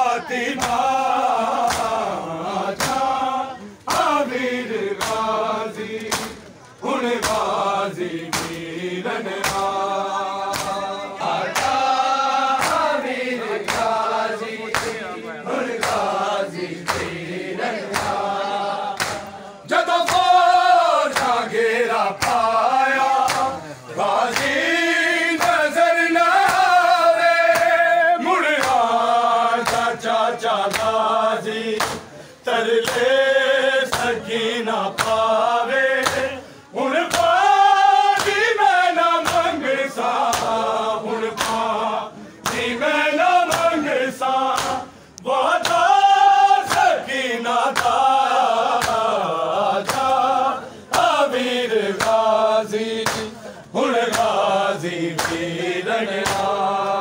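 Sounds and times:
crowd of men chanting: 0:00.0 - 0:57.0
hands slapping bare chests: 0:00.6 - 0:03.2, 0:03.9 - 0:04.2, 0:04.8 - 0:10.9, 0:11.5 - 0:15.1, 0:15.7 - 0:17.2, 0:17.8 - 0:21.4, 0:22.0 - 0:23.6, 0:24.2 - 0:24.7, 0:25.3 - 0:27.8, 0:28.6 - 0:30.0, 0:30.6 - 0:32.1, 0:32.8 - 0:33.1, 0:33.8 - 0:34.2, 0:34.8 - 0:36.4, 0:37.1 - 0:38.5, 0:39.2 - 0:40.7, 0:41.3 - 0:41.8, 0:42.4 - 0:42.8, 0:43.4 - 0:44.9, 0:45.5 - 0:50.3, 0:50.9 - 0:52.4, 0:53.0 - 0:53.4, 0:54.0 - 0:55.5, 0:56.2 - 0:57.0.

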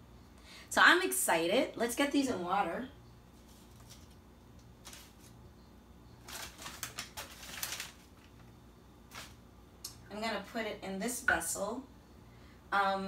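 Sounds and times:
paper rustling and crinkling: 0:03.4 - 0:05.3, 0:06.2 - 0:08.5, 0:09.1 - 0:09.4.

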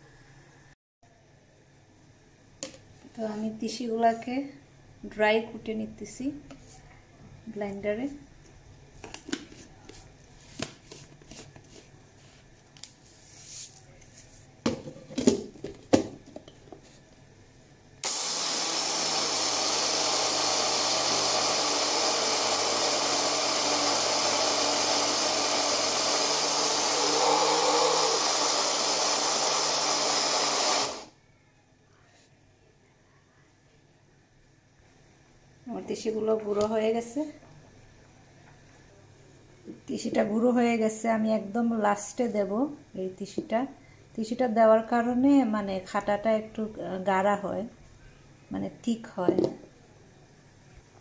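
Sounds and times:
electric blender grinding seeds: 0:18.0 - 0:31.1.

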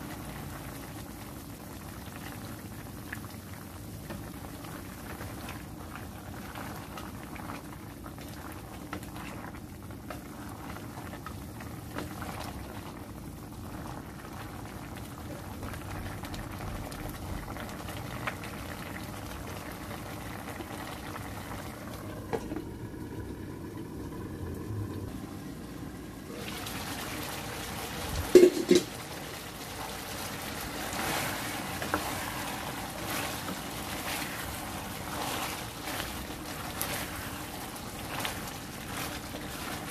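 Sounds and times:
sauce bubbling in a pan: 0:00.0 - 0:39.9
wooden spatula stirring pan: 0:26.4 - 0:39.9.

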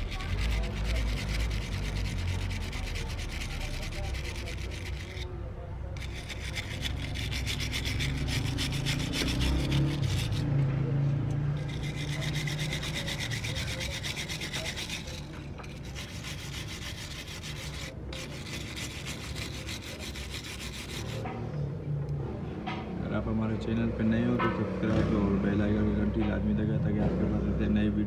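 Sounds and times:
wire brush scrubbing metal: 0:00.0 - 0:05.3, 0:06.0 - 0:10.6, 0:11.5 - 0:21.4.

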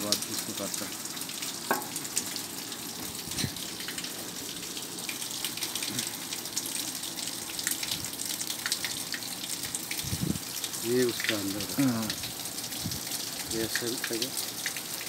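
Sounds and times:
soft knock on steel grating: 0:01.7 - 0:01.9.

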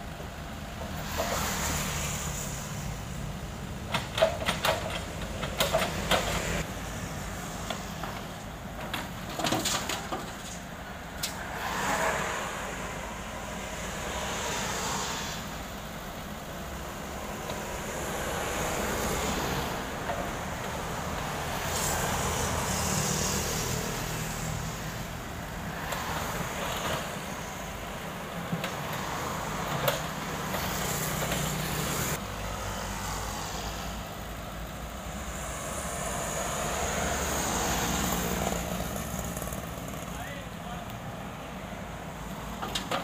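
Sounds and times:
road traffic passing: 0:00.0 - 0:43.0
excavator diesel engine running: 0:02.5 - 0:11.2.

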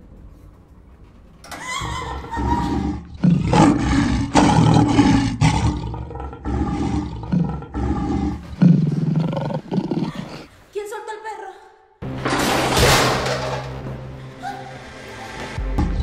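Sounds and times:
monster roaring: 0:01.8 - 0:10.4.

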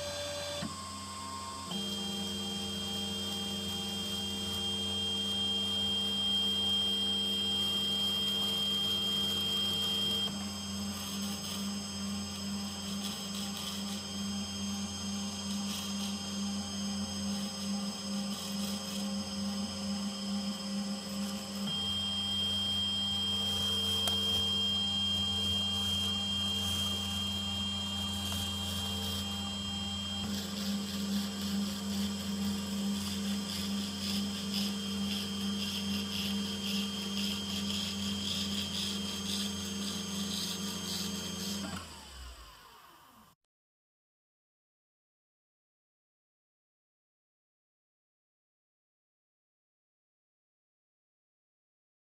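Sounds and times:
spindle motor humming: 0:00.0 - 0:43.3
stepper motors whining: 0:00.0 - 0:43.3
high thin whine: 0:21.4 - 0:34.4.

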